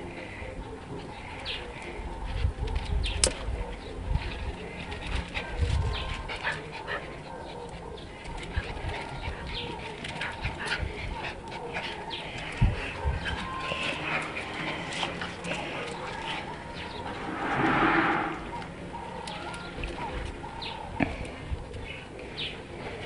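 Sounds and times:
dogs play-fighting: 0:00.0 - 0:17.3, 0:18.6 - 0:23.0
caged birds calling: 0:00.0 - 0:23.0.

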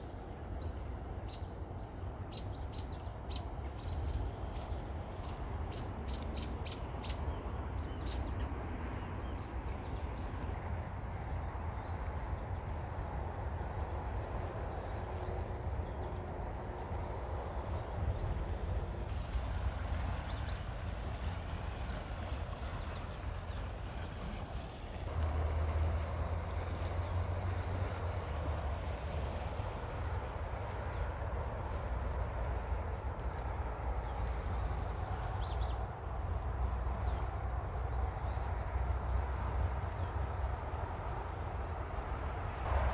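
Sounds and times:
river flowing: 0:00.0 - 0:42.9
small birds chirping: 0:34.0 - 0:37.3.

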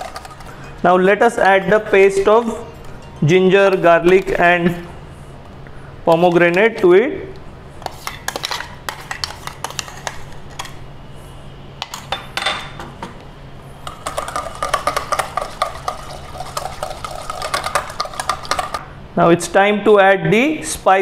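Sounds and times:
wire whisk scraping metal bowl: 0:00.0 - 0:04.6, 0:07.8 - 0:10.7, 0:13.8 - 0:18.8.

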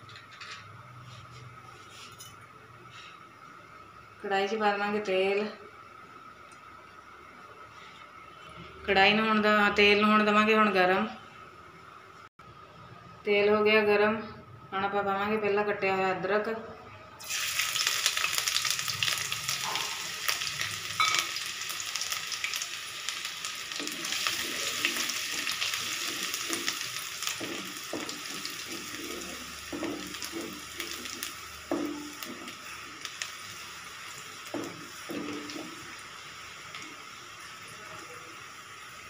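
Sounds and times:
ginger sizzling in hot oil: 0:17.2 - 0:39.0
wooden spatula scraping pan: 0:23.8 - 0:32.6.

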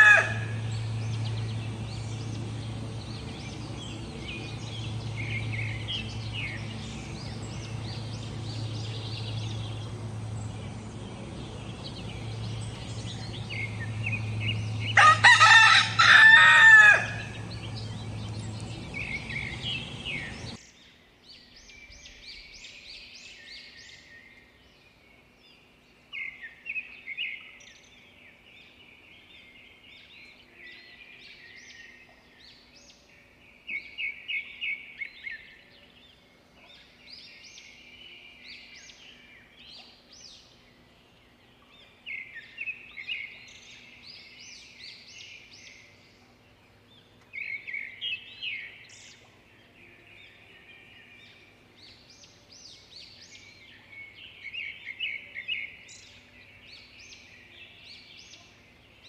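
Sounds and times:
rooster crowing: 0:00.0 - 0:00.9, 0:13.5 - 0:18.3
low steady hum: 0:00.0 - 0:20.8
small birds chirping: 0:00.0 - 0:59.0.

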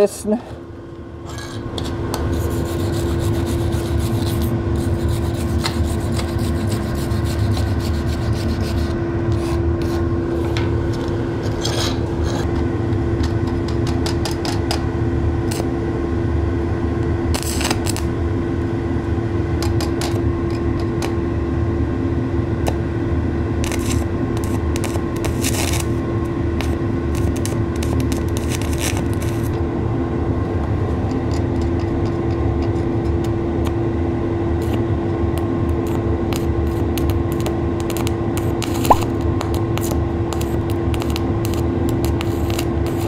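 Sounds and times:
electrode scratching metal plate: 0:02.3 - 0:08.9
steady welder hum: 0:17.3 - 0:18.2, 0:23.4 - 0:29.6, 0:34.7 - 0:43.0
welding arc crackles: 0:37.0 - 0:43.0.

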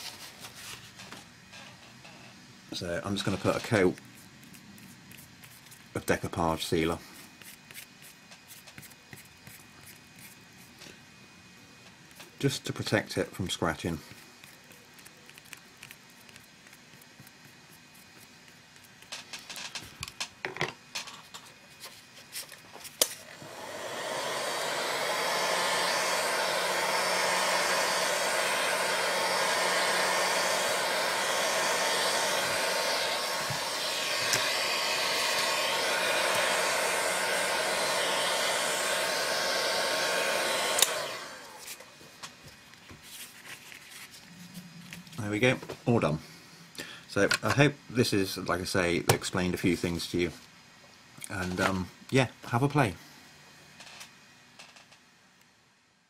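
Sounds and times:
hot-air blower running: 0:22.7 - 0:42.6.

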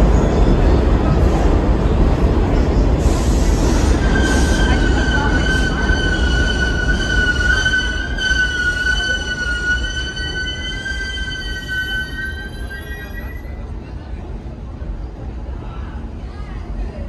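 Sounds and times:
subway train rumbling to a stop: 0:00.0 - 0:17.0
high brake squeal: 0:03.0 - 0:13.7.

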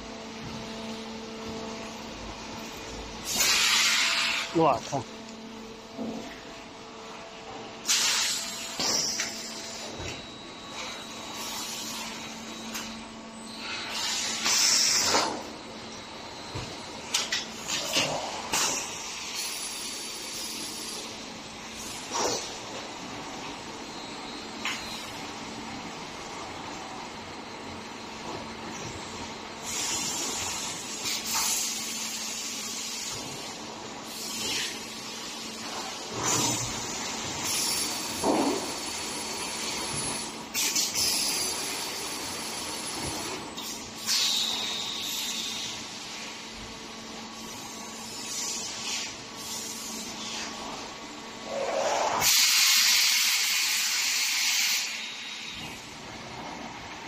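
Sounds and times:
steady machine hum: 0:00.0 - 0:52.2
compressed air hissing: 0:03.2 - 0:04.5, 0:51.8 - 0:55.6.

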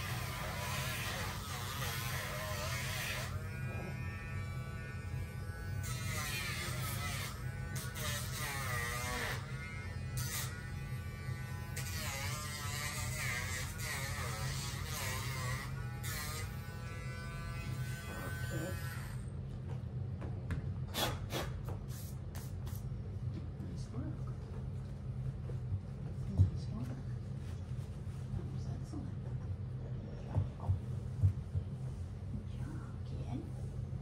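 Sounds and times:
rotary tool buzzing hum: 0:00.0 - 0:19.4.

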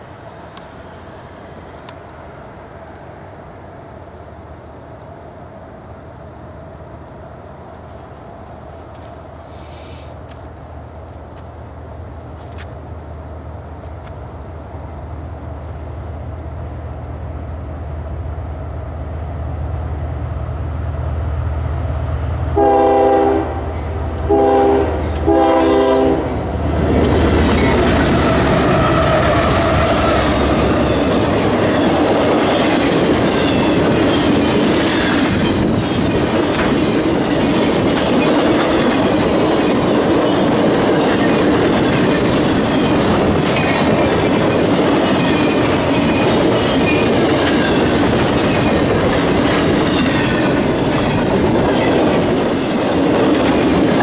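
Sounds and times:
diesel locomotive engine drone: 0:00.0 - 0:54.0
train wheels rumbling and clacking: 0:22.1 - 0:54.0
train air horn blasts: 0:22.6 - 0:26.4.

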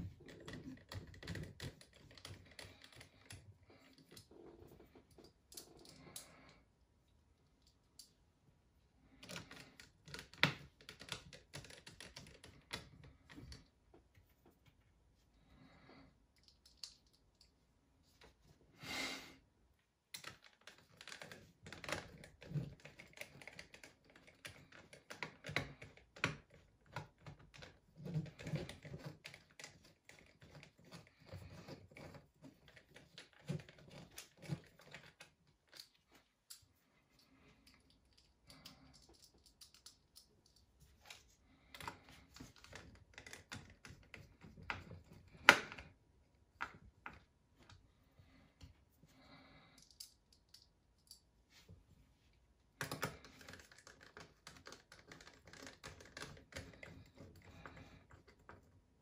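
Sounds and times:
screwdriver clicking and scraping: 0:20.2 - 0:36.7, 0:37.6 - 0:45.8.

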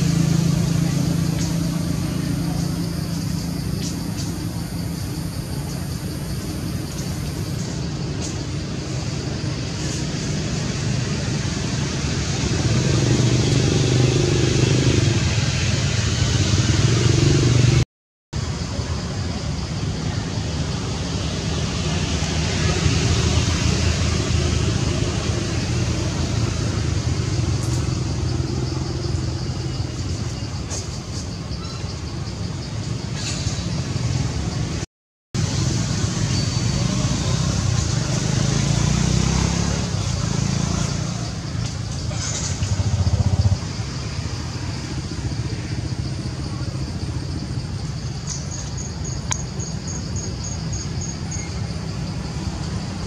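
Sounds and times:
traffic rumble: 0:00.0 - 0:17.8, 0:18.4 - 0:53.0
faint high ticks: 0:49.2 - 0:49.5.

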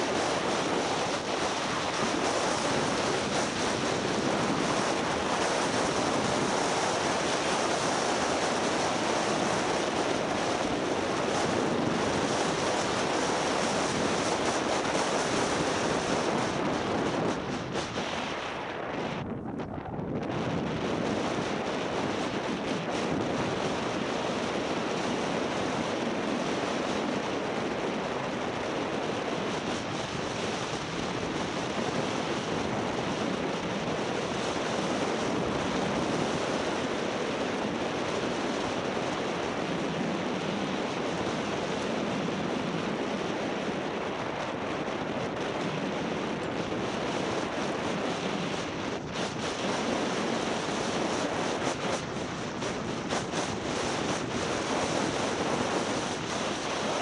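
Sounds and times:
wind on microphone: 0:00.0 - 0:57.0.

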